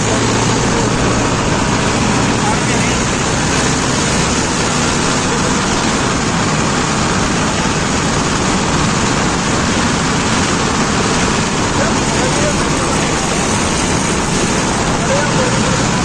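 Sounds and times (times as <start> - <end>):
tractor engine running: 0.0 - 16.0.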